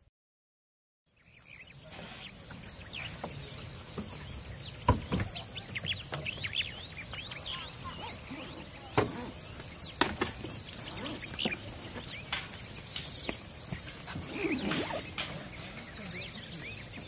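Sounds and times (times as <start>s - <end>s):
insect chorus: 1.1s - 17.0s.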